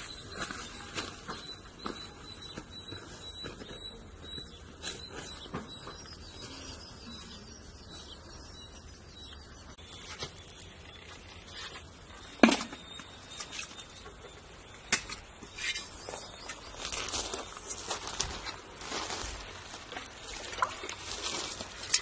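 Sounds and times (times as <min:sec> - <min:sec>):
rustling: 0:15.5 - 0:22.0.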